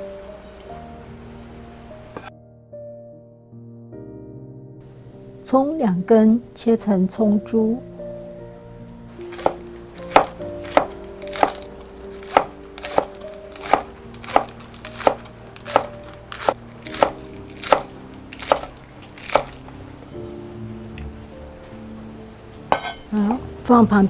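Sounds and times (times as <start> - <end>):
knife chopping on wooden board: 9.3 - 19.6, 22.7 - 23.0.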